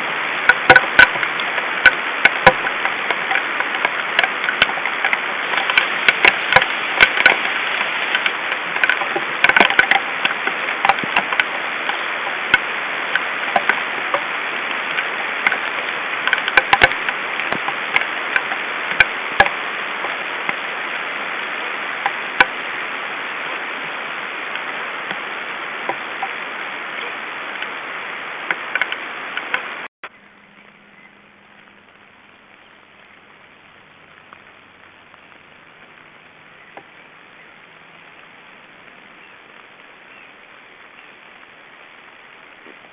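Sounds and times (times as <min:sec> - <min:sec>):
hailstones striking: 0:00.0 - 0:29.9
heavy rain hissing: 0:00.0 - 0:42.9
low hum: 0:00.0 - 0:42.9.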